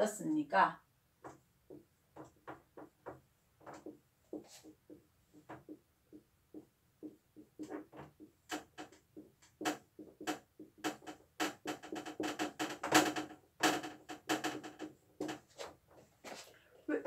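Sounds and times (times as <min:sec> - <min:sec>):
marker squeaking on a whiteboard: 0:01.2 - 0:13.0.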